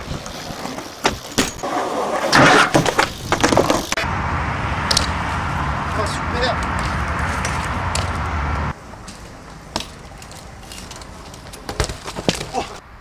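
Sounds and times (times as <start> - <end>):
tyres scraping on concrete: 0.0 - 4.0
bike landing knocks: 0.7 - 1.7, 2.3 - 4.0, 9.1 - 12.7.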